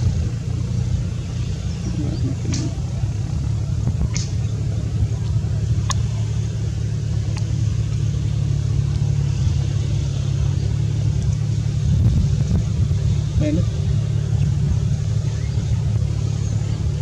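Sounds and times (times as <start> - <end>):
steady low rumble: 0.0 - 17.0
sharp click: 4.1 - 4.4.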